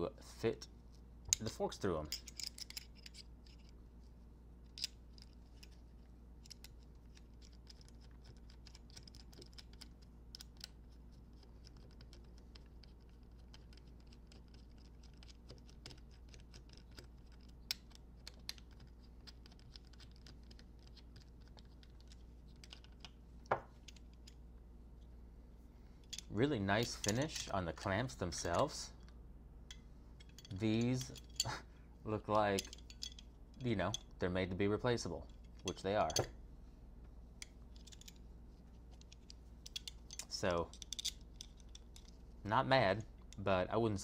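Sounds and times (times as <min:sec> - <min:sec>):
small metal bolts clicking: 0:01.3 - 0:03.7, 0:26.0 - 0:27.6, 0:29.7 - 0:31.6, 0:32.4 - 0:34.2, 0:35.2 - 0:36.3, 0:37.4 - 0:38.2, 0:39.0 - 0:42.2.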